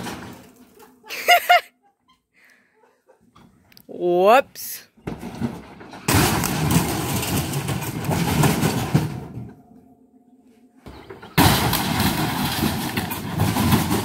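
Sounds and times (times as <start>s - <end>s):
crash of smashing plastic and board: 0.0s - 0.9s, 5.1s - 9.6s, 10.9s - 14.0s.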